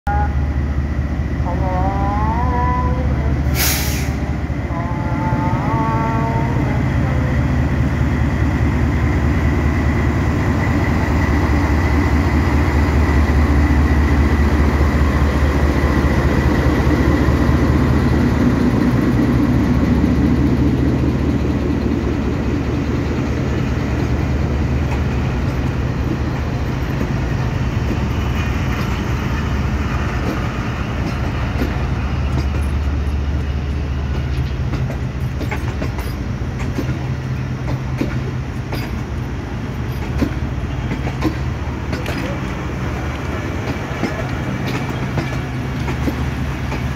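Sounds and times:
diesel locomotive engine running: 0.1s - 46.9s
train wheels clicking over rail joints: 10.8s - 46.9s.

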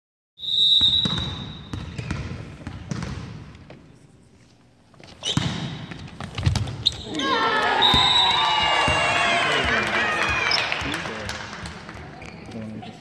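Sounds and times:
referee's whistle blast: 0.4s - 1.7s, 7.8s - 8.6s
volleyball hits and bounces: 0.8s - 3.9s, 5.2s - 12.6s.

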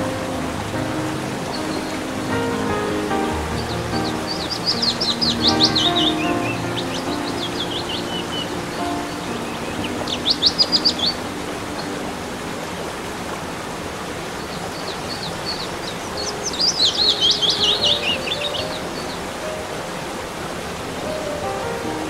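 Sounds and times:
songbird chirping: 0.0s - 12.2s, 14.3s - 19.9s
waterfall rushing: 0.0s - 22.0s.

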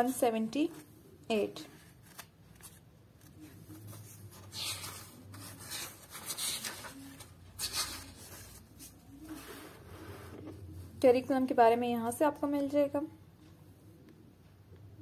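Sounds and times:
paper pages turning: 1.7s - 10.6s.

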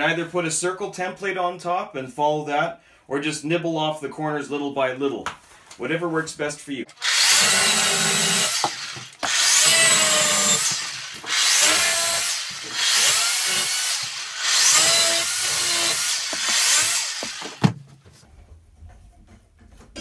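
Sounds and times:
electric chainsaw cutting wood: 6.9s - 17.8s.

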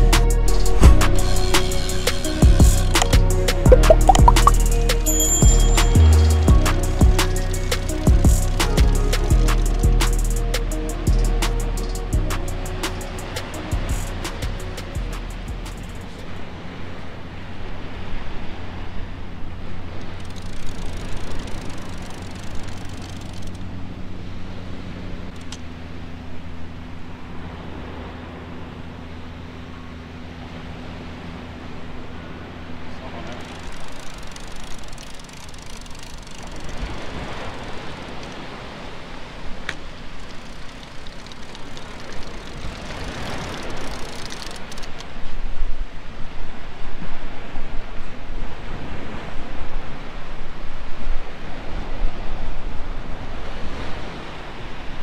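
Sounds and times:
sharp click: 3.0s - 4.7s
faint rapid ticking: 20.0s - 23.7s, 33.3s - 38.4s, 40.1s - 45.0s
surf breaking on beach: 30.7s - 55.0s.

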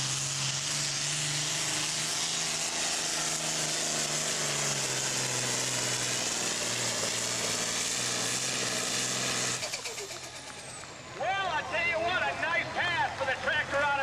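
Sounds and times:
tractor diesel engine running: 0.0s - 14.0s.

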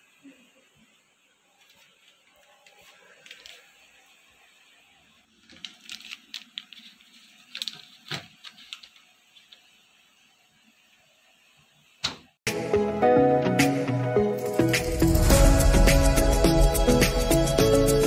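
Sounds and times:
plastic wrapper crinkling: 1.5s - 3.9s, 5.3s - 9.7s
packet set on plastic shelf: 5.4s - 9.6s.

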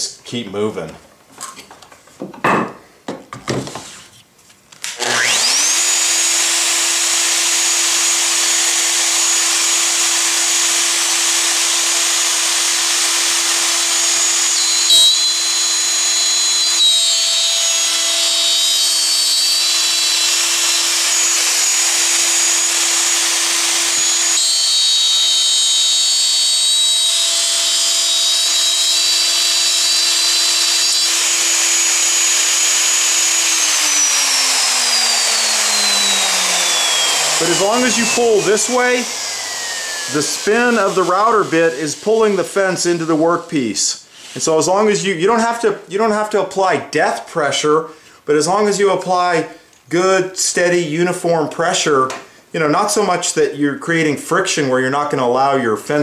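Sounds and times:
router whining: 4.8s - 44.6s.

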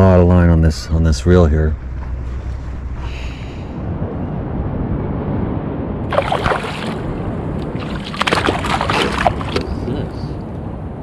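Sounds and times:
wind rumble on microphone: 0.0s - 11.0s
water splashing against kayak hull: 6.1s - 9.8s.

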